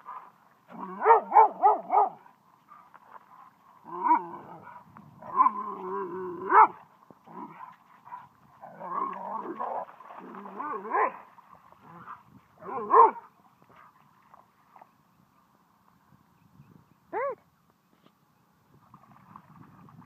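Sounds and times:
dogs growling playfully: 0:00.1 - 0:02.1, 0:03.8 - 0:11.1.

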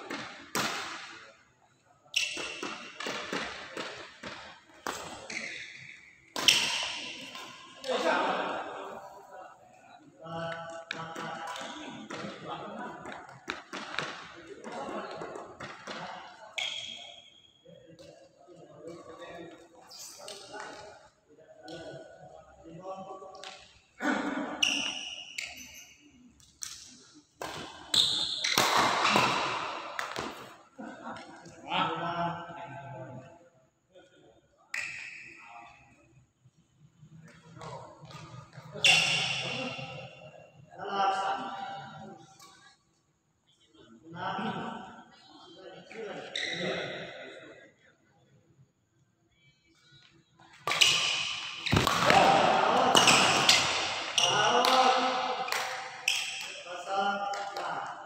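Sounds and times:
shoes squeaking on court floor: 0:04.5 - 0:07.8, 0:24.6 - 0:26.1, 0:37.4 - 0:39.9, 0:46.2 - 0:46.7, 0:50.6 - 0:52.2
racket hitting shuttlecock: 0:06.3 - 0:07.6, 0:50.6 - 0:56.6.

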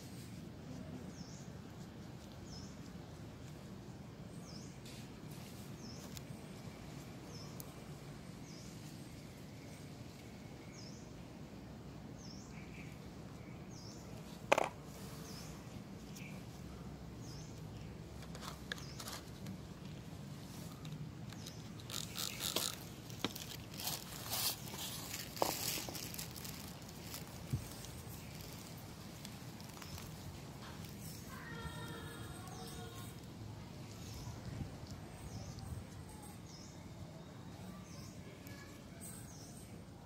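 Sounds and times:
outdoor background noise: 0:00.0 - 0:40.0.

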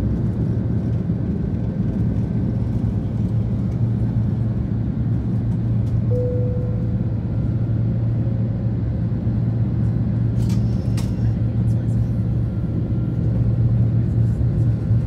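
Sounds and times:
airliner engine rumble: 0:00.0 - 0:15.0
short faint tone: 0:06.1 - 0:07.0.

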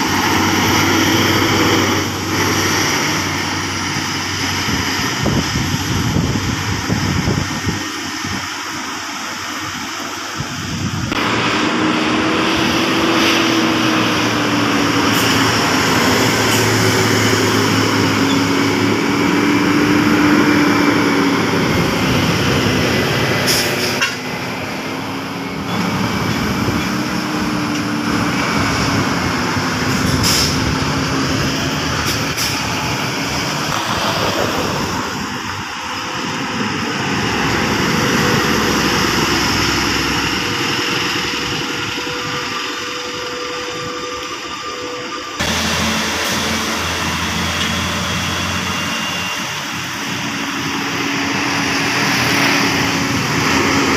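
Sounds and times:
heavy diesel engines labouring: 0:00.0 - 0:53.9
sharp air hisses: 0:29.9 - 0:30.7.

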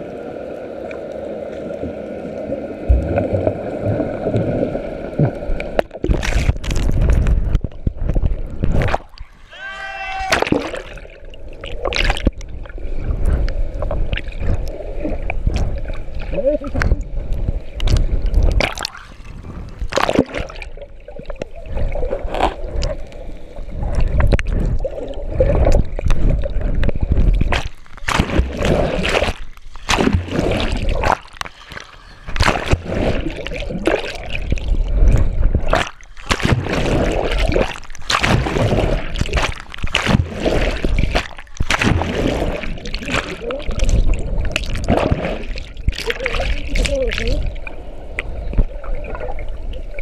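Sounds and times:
sea water splashing and gurgling: 0:00.0 - 0:50.0
swimmers kicking: 0:24.6 - 0:47.4.

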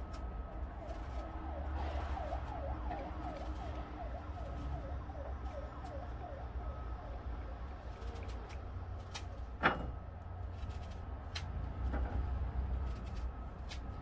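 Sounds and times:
siren sweeping down and up: 0:00.4 - 0:07.8.

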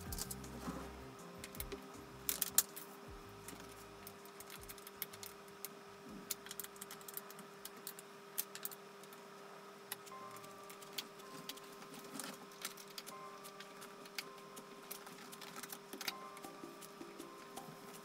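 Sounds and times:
chair parts clicking and tapping: 0:00.0 - 0:00.8
faint steady hum: 0:00.0 - 0:18.0.

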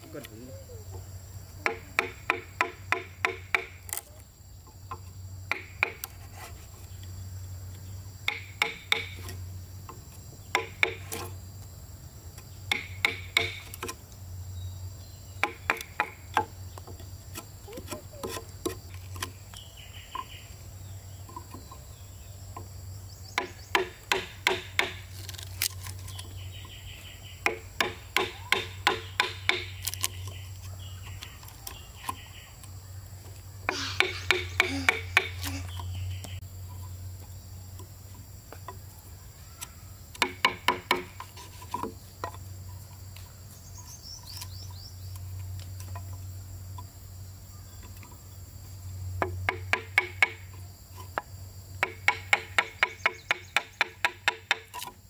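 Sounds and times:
hammer striking wood: 0:01.6 - 0:03.8, 0:04.9 - 0:06.1, 0:08.2 - 0:09.3, 0:10.5 - 0:11.3, 0:12.7 - 0:14.0, 0:15.4 - 0:19.3, 0:23.4 - 0:25.1, 0:27.4 - 0:30.0, 0:33.7 - 0:35.5, 0:40.2 - 0:41.2, 0:49.2 - 0:50.4, 0:51.8 - 0:55.0.

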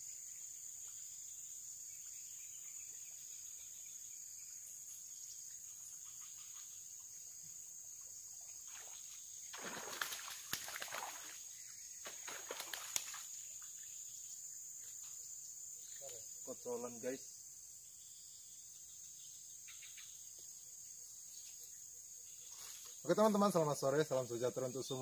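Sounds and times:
high-pitched insect chorus: 0:00.0 - 0:25.0
splashing in water: 0:08.6 - 0:13.4.

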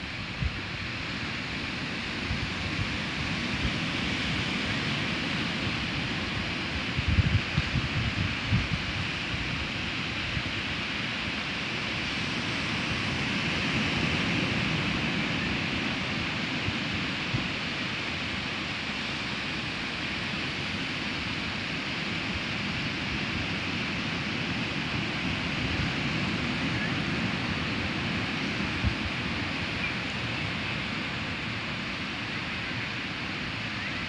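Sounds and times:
wind buffeting microphone: 0:00.0 - 0:10.8, 0:22.1 - 0:31.9
waves breaking on a beach: 0:00.0 - 0:34.0.

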